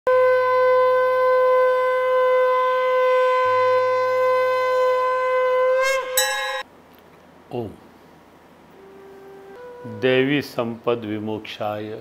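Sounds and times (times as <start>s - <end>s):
conch shell blown: 0.1s - 6.6s, 8.8s - 10.0s.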